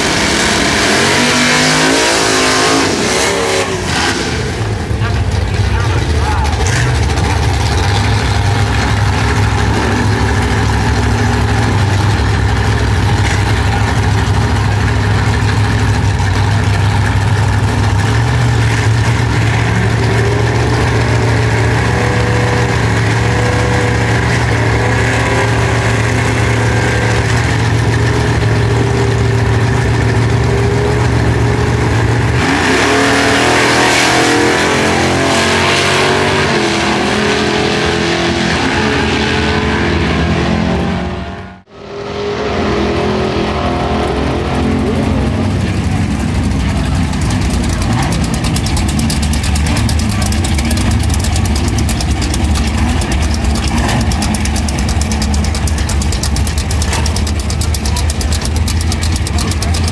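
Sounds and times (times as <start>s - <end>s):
engines revving hard: 0.0s - 59.9s
drag cars idling: 3.8s - 33.4s, 43.3s - 59.9s.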